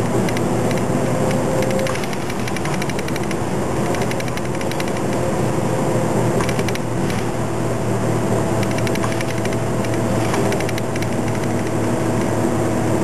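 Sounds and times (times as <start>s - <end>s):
bus engine running: 0.0s - 13.0s
road noise: 0.0s - 13.0s
fast ticking: 1.6s - 5.2s, 8.6s - 11.8s.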